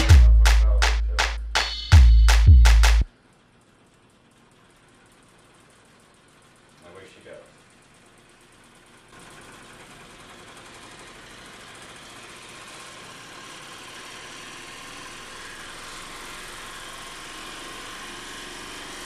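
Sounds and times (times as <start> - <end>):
faint motor whine: 3.1 - 19.0
motor rotor whirring: 9.1 - 19.0.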